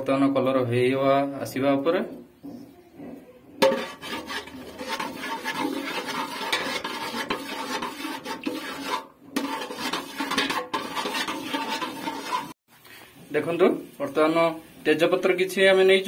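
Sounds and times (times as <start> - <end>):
metal ladle scraping a pot: 3.0 - 12.6.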